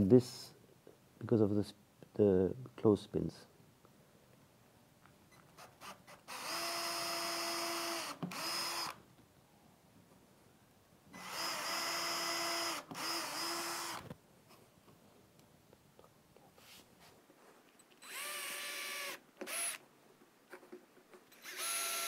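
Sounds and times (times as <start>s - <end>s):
electric drill whining: 6.2s - 9.0s, 11.2s - 14.1s, 18.0s - 19.8s, 21.3s - 22.0s.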